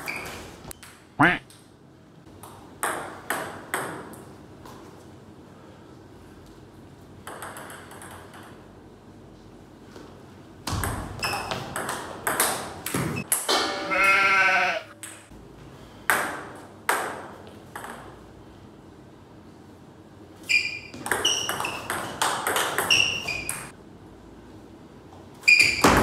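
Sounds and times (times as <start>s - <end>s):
person's wavering cry: 1.2s - 1.4s.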